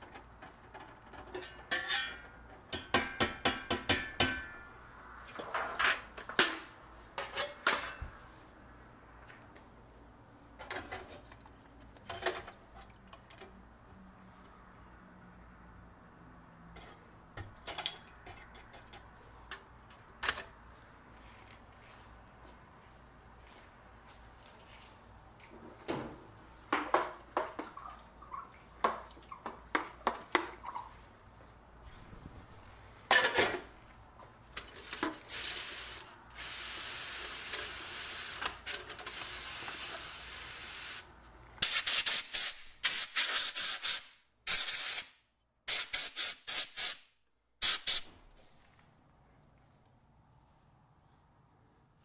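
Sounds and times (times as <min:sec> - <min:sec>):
spray bottle squirting: 0:41.6 - 0:45.1, 0:45.7 - 0:47.0, 0:47.6 - 0:48.1.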